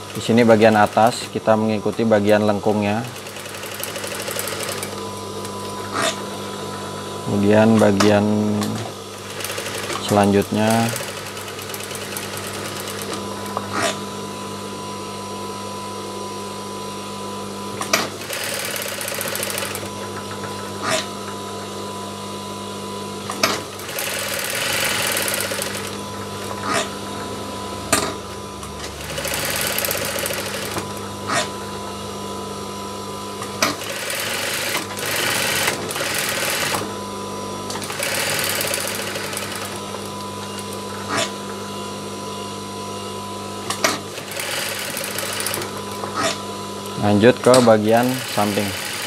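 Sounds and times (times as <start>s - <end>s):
sewing machine motor humming: 0.0s - 1.2s, 2.3s - 7.4s, 8.6s - 14.0s, 17.7s - 21.1s, 23.2s - 31.6s, 33.4s - 37.0s, 37.6s - 41.4s, 43.7s - 49.0s
sewing machine clicks: 3.2s - 5.0s, 9.2s - 13.6s, 17.8s - 19.9s, 23.3s - 26.9s, 28.8s - 31.0s, 33.5s - 36.8s, 37.7s - 40.0s, 43.7s - 45.8s.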